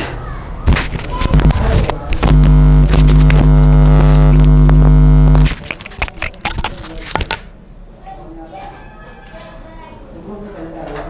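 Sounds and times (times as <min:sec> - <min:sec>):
electrical hum: 0:00.6 - 0:07.2.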